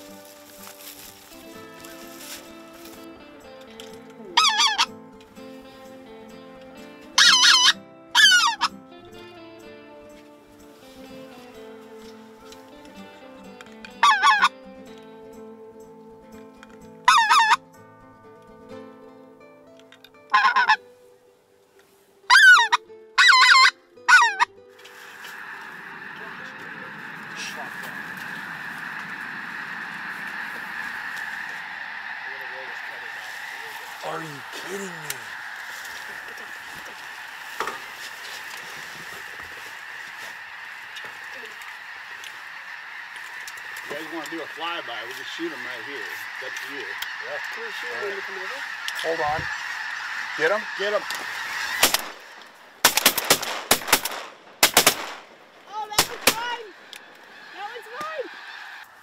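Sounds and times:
goose call honks: 4.4 - 4.9, 7.2 - 8.7, 14.0 - 14.6, 17.1 - 17.6, 20.3 - 20.8, 22.3 - 24.5, 27.3 - 52.4.

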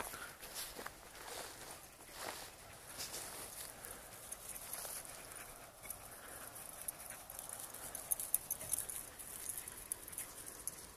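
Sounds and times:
footsteps on dry grass: 0.0 - 5.8.

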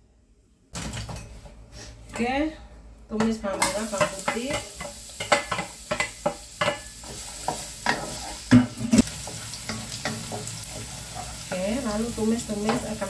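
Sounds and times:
shallots and garlic sizzling in oil: 3.3 - 13.0
wooden spatula scraping a wok: 7.0 - 13.0.

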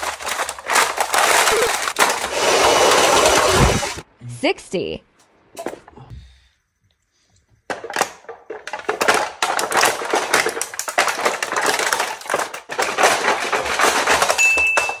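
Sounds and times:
plastic cups crackling under board: 0.0 - 4.0, 7.7 - 15.0.

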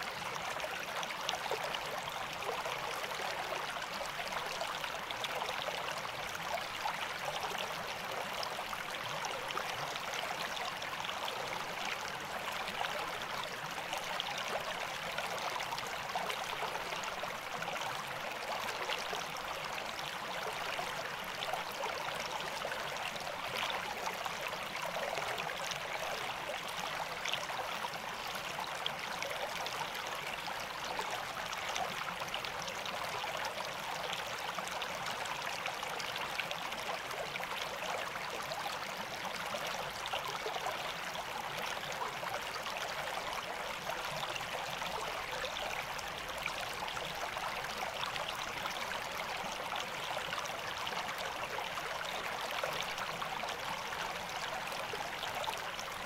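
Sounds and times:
brook babbling over stones: 0.0 - 56.0.

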